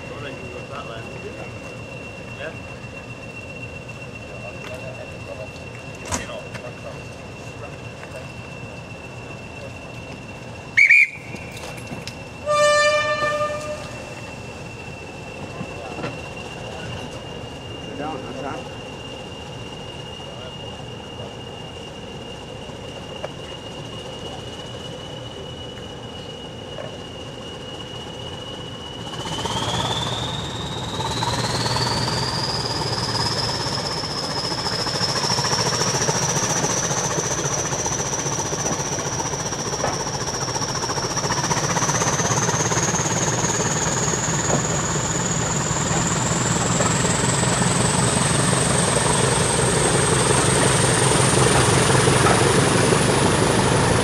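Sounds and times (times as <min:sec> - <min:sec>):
diesel locomotive engine: 0:00.0 - 0:54.0
turbocharger whistle: 0:00.0 - 0:54.0.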